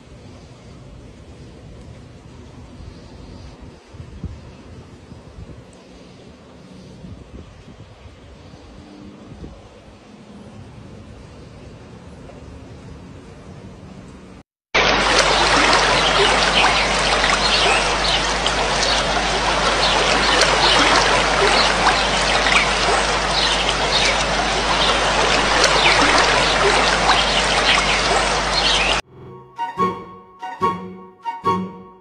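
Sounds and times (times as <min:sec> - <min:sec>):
chorus of frogs calling: 0:14.8 - 0:29.0.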